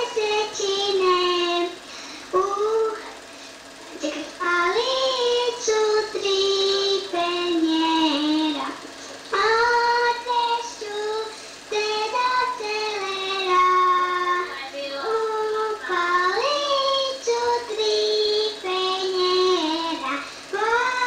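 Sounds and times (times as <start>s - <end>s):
child singing: 0.0s - 1.8s, 2.4s - 3.1s, 4.0s - 21.0s.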